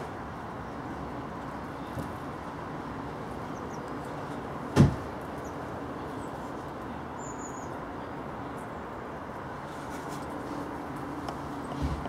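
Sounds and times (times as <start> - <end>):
outdoor background noise: 0.0 - 12.0
sharp loud knock: 4.8 - 5.0.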